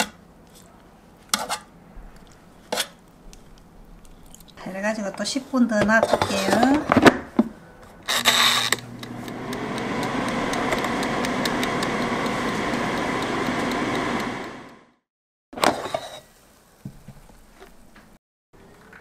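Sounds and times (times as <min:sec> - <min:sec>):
air fryer fan whirring: 0:08.2 - 0:15.0
timer ticking: 0:09.0 - 0:14.8.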